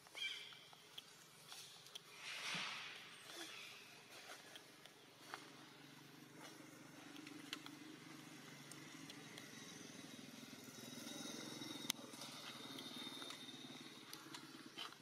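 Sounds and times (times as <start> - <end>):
vehicle engine droning: 4.4 - 15.0.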